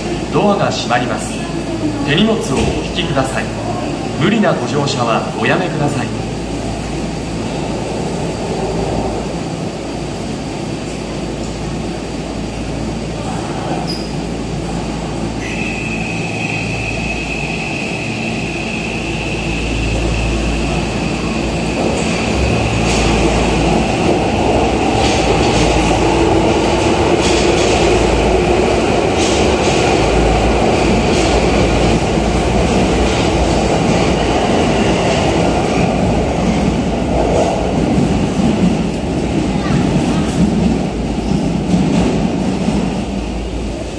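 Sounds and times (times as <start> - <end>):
subway train motor whine: 0.0 - 43.9.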